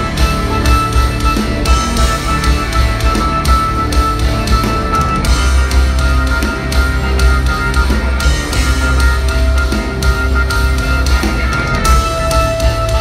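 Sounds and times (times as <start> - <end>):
metal band playing live: 0.0 - 13.0.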